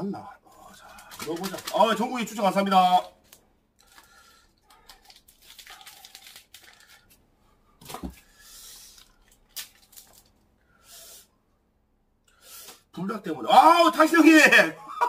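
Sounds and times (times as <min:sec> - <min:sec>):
plastic packets crinkling: 0:00.8 - 0:07.2, 0:07.8 - 0:10.6.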